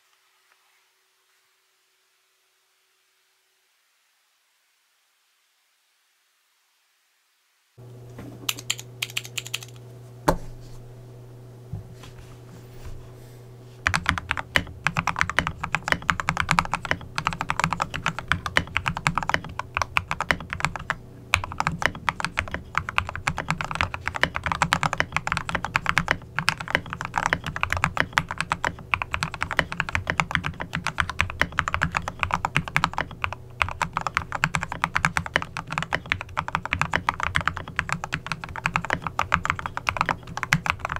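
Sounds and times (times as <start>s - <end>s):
steady low hum: 7.8s - 40.9s
mechanical keyboard typing: 8.5s - 9.8s, 13.8s - 40.9s.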